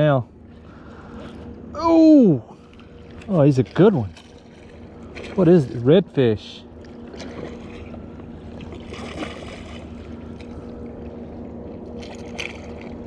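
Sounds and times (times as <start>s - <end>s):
steady low hum: 0.0s - 13.0s
water splashing: 2.6s - 5.9s, 6.6s - 11.2s, 11.8s - 13.0s.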